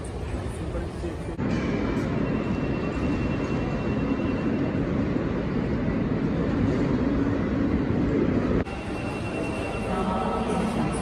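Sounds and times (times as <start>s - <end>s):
jet engines rumbling at takeoff: 0.0s - 8.7s.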